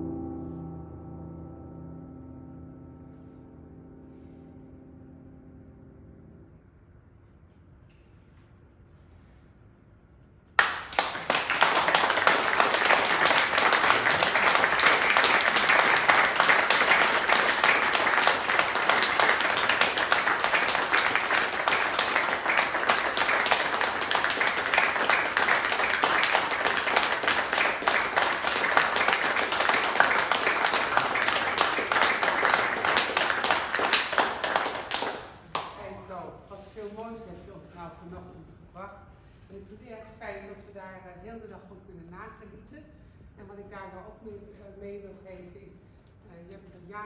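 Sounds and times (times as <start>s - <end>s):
audience applauding: 10.6s - 35.9s.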